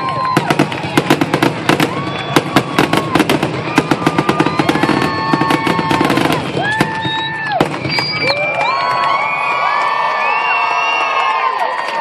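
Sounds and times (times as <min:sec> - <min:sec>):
fireworks bangs and crackles: 0:00.0 - 0:09.2
whistling fireworks: 0:00.0 - 0:11.3.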